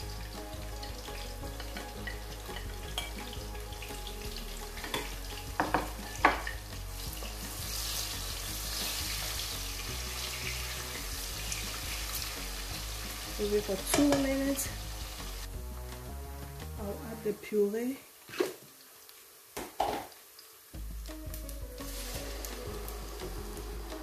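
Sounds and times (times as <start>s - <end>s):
onions sizzling in hot oil: 0.0s - 24.0s
spatula knocking on cookware: 4.8s - 6.6s.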